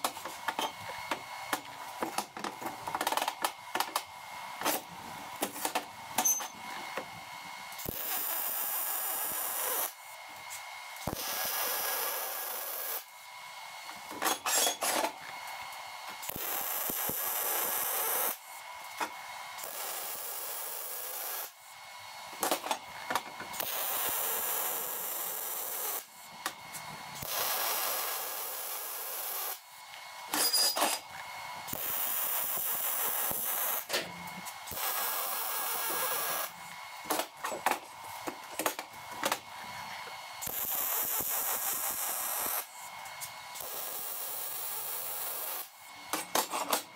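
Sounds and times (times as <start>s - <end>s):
crackling welding arc hiss: 7.7s - 13.2s, 13.9s - 21.8s, 22.4s - 39.4s, 40.4s - 46.9s.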